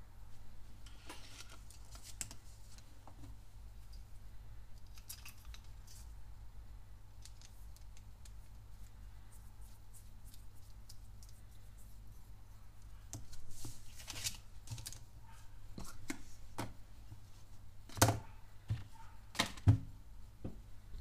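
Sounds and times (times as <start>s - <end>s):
paper rustling: 13.3s - 15.0s.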